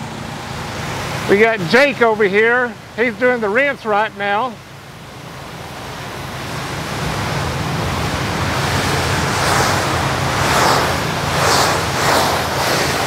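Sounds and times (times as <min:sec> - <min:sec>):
low hum: 0:04.5 - 0:13.0
pressure washer spraying concrete: 0:07.0 - 0:13.0.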